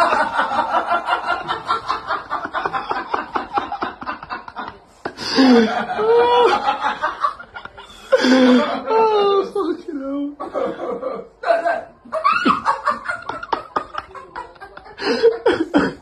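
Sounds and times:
person laughing hard: 0:00.0 - 0:06.9
person speaking: 0:07.3 - 0:10.4.

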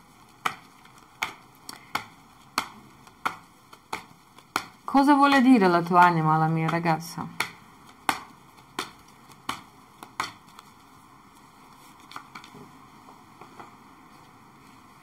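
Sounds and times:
cards snapping and tapping: 0:00.2 - 0:10.8, 0:11.9 - 0:12.6.

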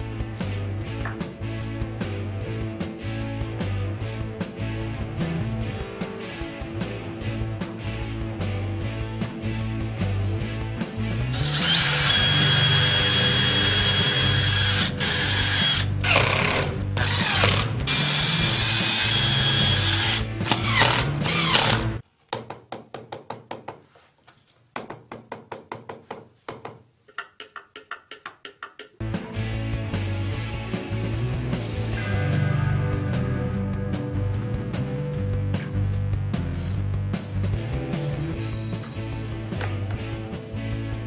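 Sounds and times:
background music: 0:00.0 - 0:22.0, 0:28.1 - 0:41.0
power drill motor whining: 0:11.3 - 0:21.9.

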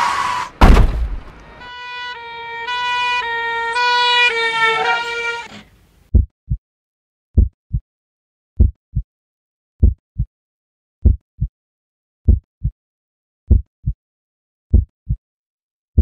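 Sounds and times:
horn-like tone notes: 0:01.4 - 0:05.6
heartbeat thumps: 0:06.1 - 0:06.6, 0:07.4 - 0:07.8, 0:08.6 - 0:09.1, 0:09.8 - 0:10.3, 0:11.0 - 0:11.5, 0:12.3 - 0:12.8, 0:13.5 - 0:14.0, 0:14.7 - 0:15.2.

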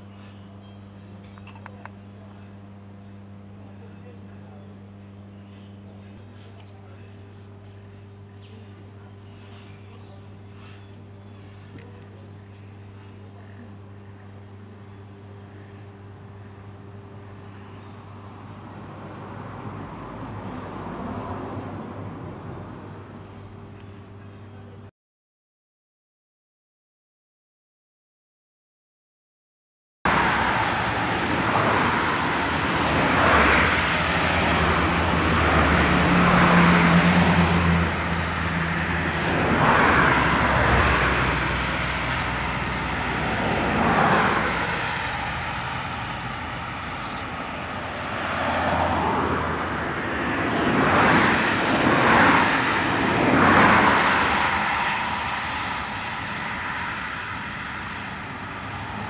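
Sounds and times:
low engine hum: 0:00.0 - 0:24.7, 0:30.1 - 0:59.0
vehicles passing: 0:14.3 - 0:24.8, 0:30.1 - 0:59.0.

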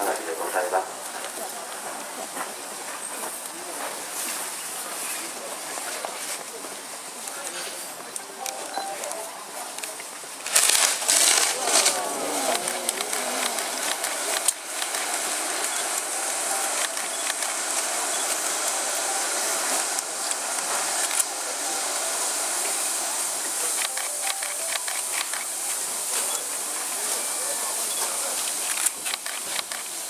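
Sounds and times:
firework fountains hissing: 0:00.0 - 0:30.0
firework crackles and pops: 0:09.7 - 0:30.0.

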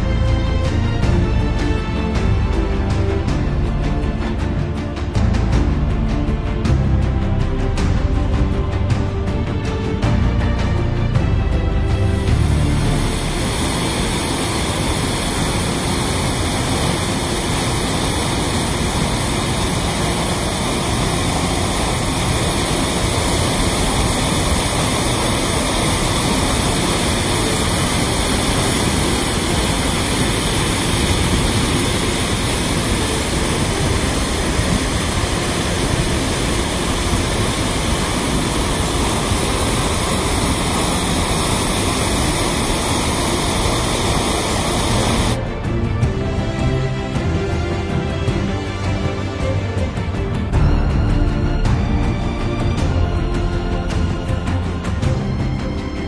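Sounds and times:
waterfall rushing over rocks: 0:12.1 - 0:45.5.

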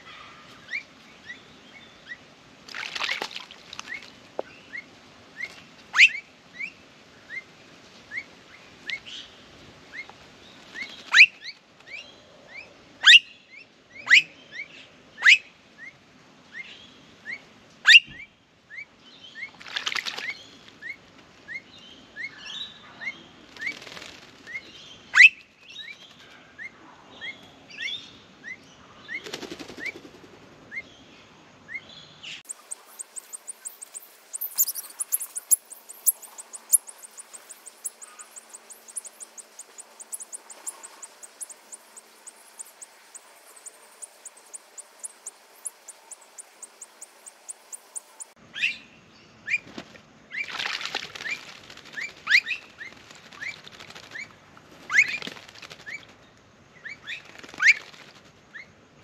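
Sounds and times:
birds splashing in water: 0:02.6 - 0:04.4, 0:19.5 - 0:20.9, 0:32.4 - 0:48.4, 0:49.6 - 0:56.2, 0:57.0 - 0:58.4
sharp loud bird calls: 0:25.0 - 0:26.0, 0:31.7 - 0:48.9
bird chirping rising notes: 0:32.4 - 0:48.8.

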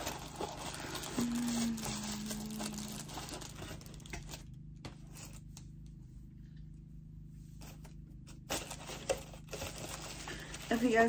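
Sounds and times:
clicks and rustles of small items: 0:00.0 - 0:04.5
steady low hum: 0:00.0 - 0:11.0.

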